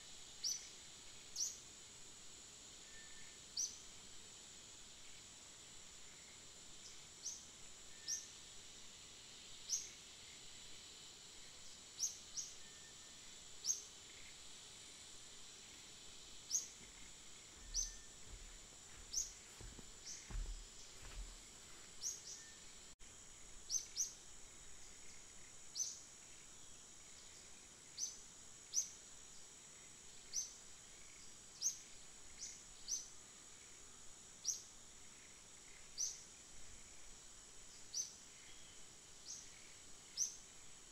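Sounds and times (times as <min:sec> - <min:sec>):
high-pitched insect drone: 0:04.8 - 0:37.2.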